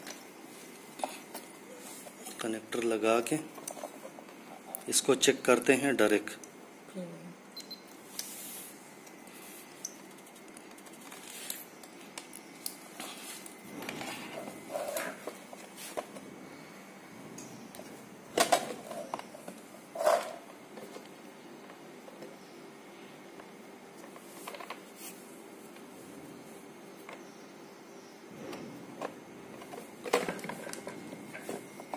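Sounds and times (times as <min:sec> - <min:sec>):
plastic parts clicking and rustling: 0:29.0 - 0:31.9.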